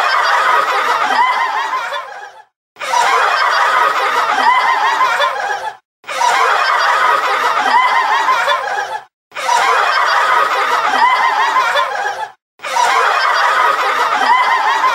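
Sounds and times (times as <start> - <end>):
several people laughing: 0.0 - 14.9.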